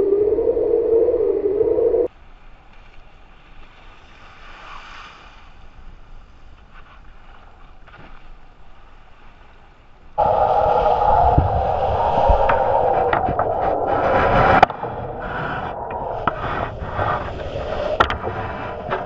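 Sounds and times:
wind and water rushing: 10.2 - 19.0.

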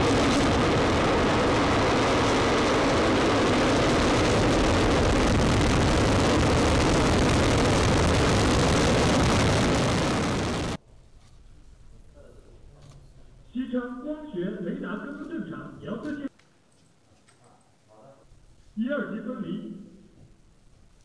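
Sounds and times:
rocket engines rumbling: 0.0 - 10.8.

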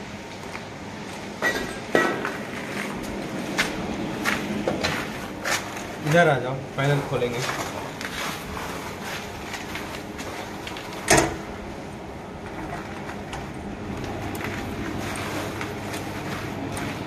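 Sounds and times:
machine-shop hum: 0.0 - 17.0
metal cabinet door opening: 11.0 - 11.4.

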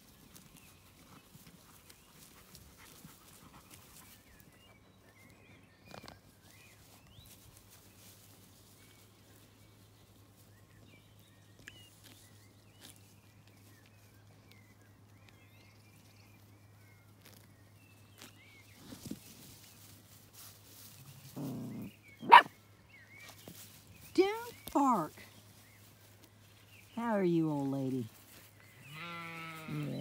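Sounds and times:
faint birdsong: 0.0 - 30.0
puppy growling: 21.4 - 22.5
puppy barking: 22.2 - 22.5.

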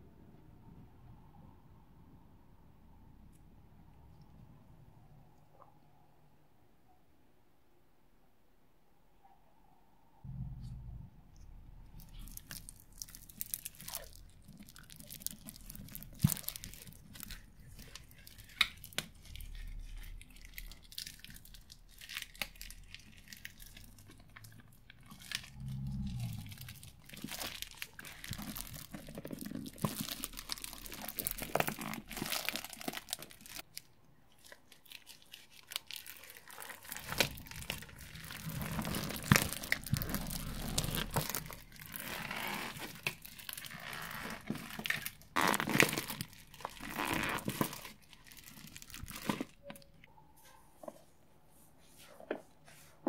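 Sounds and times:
plastic tubes crinkling: 11.8 - 50.1.

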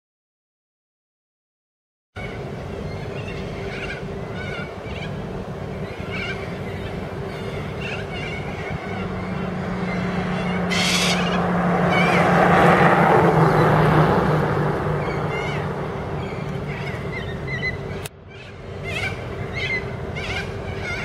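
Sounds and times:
vehicle passing on road: 2.4 - 21.0
corellas screeching: 10.1 - 12.3.

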